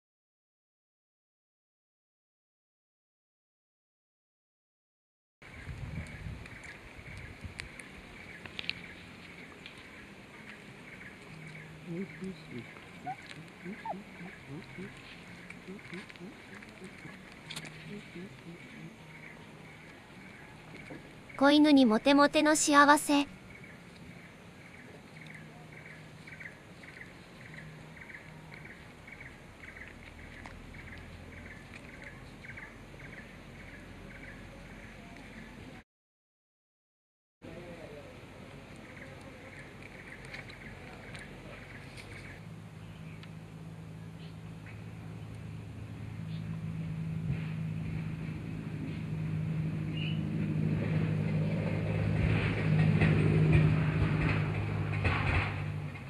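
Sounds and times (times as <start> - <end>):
engine humming: 5.4 - 35.8, 37.4 - 56.0
dry leaves crackling: 5.6 - 21.2
small animal high chirp: 11.9 - 14.9.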